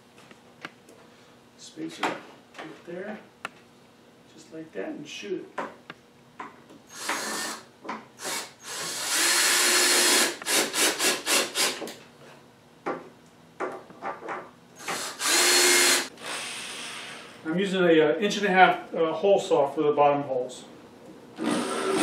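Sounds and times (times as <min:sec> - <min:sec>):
cordless drill driving screws: 0:06.9 - 0:11.8, 0:14.8 - 0:17.4, 0:21.4 - 0:22.0.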